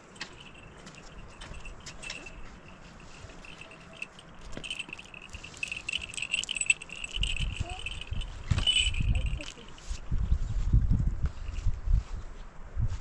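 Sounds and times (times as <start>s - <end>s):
light clicks and rattles: 0.0s - 10.0s.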